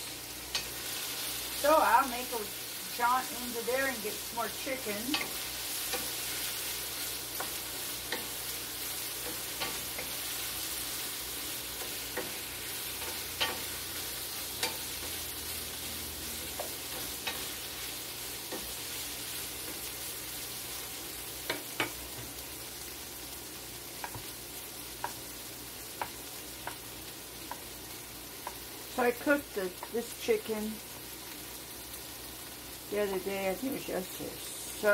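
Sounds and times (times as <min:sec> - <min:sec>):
food sizzling in a skillet: 0:00.0 - 0:34.9
wooden spoon scraping a pan: 0:03.8 - 0:15.3.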